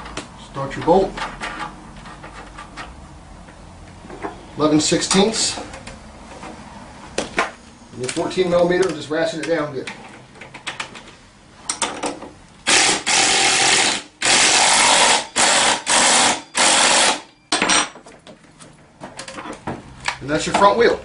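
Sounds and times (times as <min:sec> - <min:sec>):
power ratchet running: 0:12.6 - 0:17.3.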